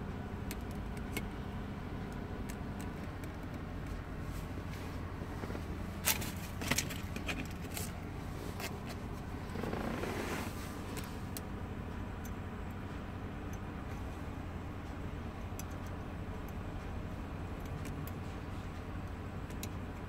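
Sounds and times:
low hum in car cabin: 0.0 - 20.0.

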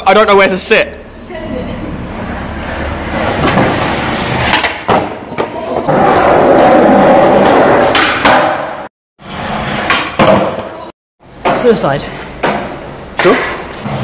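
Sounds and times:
skateboard wheels rolling on concrete: 1.2 - 14.0
skateboard clacks: 3.2 - 8.8.

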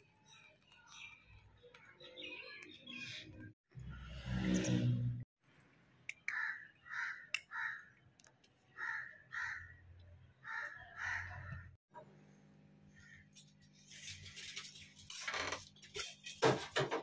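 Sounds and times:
crow cawing: 6.3 - 7.9, 8.8 - 9.7, 10.4 - 11.6.

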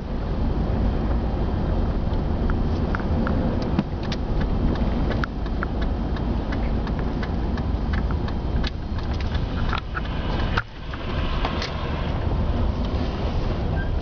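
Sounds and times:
vehicle rumble inside cabin: 0.0 - 14.0
light ticks and clicks: 2.1 - 11.8.

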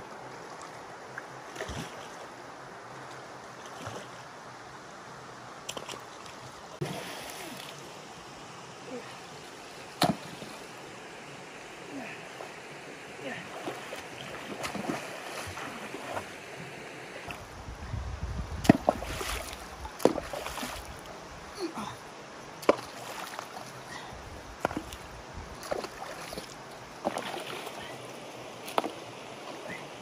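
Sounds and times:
wading splashes in water: 0.3 - 2.4, 3.6 - 4.2, 5.7 - 8.0, 13.2 - 17.5, 18.6 - 21.8, 22.6 - 30.0
sharp knocks of stones: 18.6 - 19.0.

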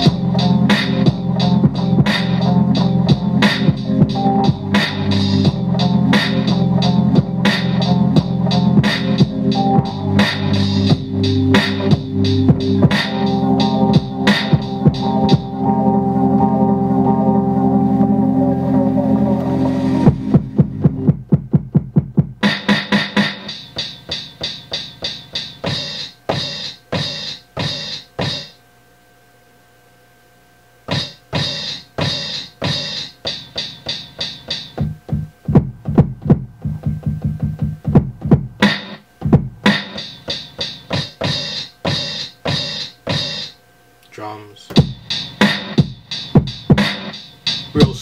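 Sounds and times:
drum sample hits: 20.1 - 23.6, 44.7 - 48.0.

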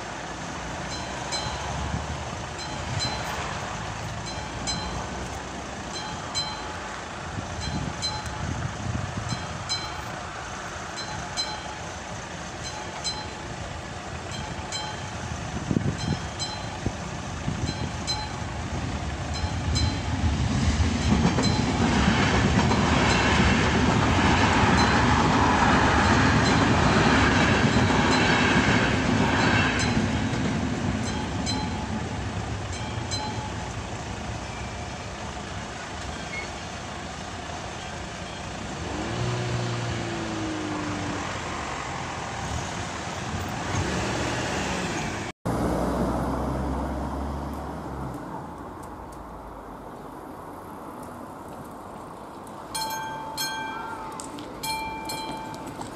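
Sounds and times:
railway crossing bell ringing: 0.0 - 20.3, 20.9 - 38.6, 52.7 - 55.9
passing train rumble: 0.0 - 55.9.

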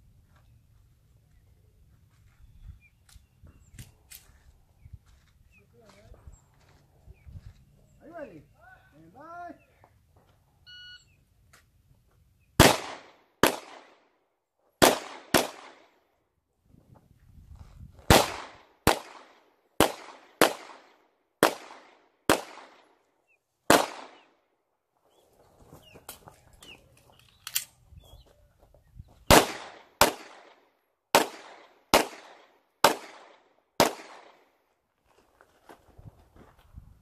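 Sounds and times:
pistol shots: 12.6 - 14.0, 14.8 - 16.0, 18.1 - 23.0, 23.7 - 24.3, 29.3 - 34.4.

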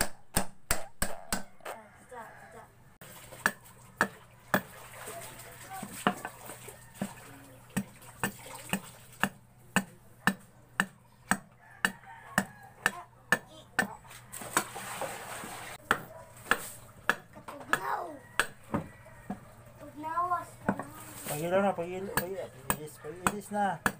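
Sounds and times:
wooden mallet knocking: 0.0 - 1.6, 7.8 - 14.0, 15.8 - 19.4, 20.6 - 20.9, 22.1 - 23.9.

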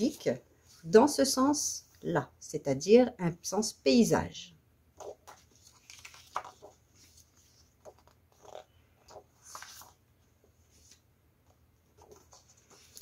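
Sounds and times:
paper sheets rustling: 5.0 - 13.0.

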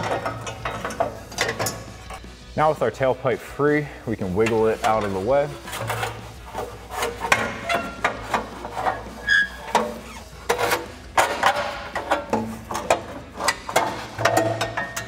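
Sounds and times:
metal exhaust pipe knocking and scraping: 0.0 - 2.3, 4.2 - 15.0
quiet background music: 0.0 - 15.0.

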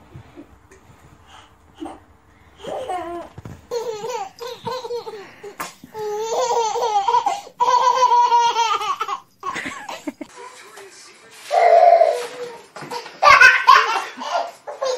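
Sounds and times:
baby laughing: 1.8 - 10.3, 11.5 - 14.9.

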